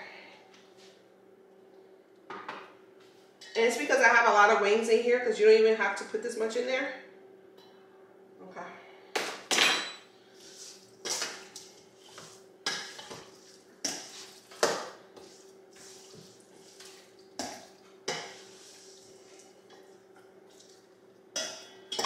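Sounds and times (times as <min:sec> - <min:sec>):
kitchenware clinking and clattering: 0:09.5 - 0:10.1, 0:21.4 - 0:22.0.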